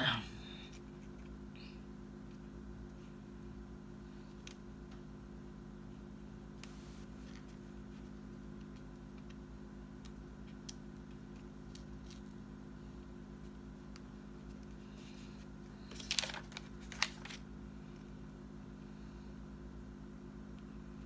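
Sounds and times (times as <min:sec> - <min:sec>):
steady low hum: 0:00.0 - 0:21.0
stickers being peeled: 0:06.6 - 0:12.5, 0:15.8 - 0:17.5
paper crinkle: 0:14.5 - 0:17.5.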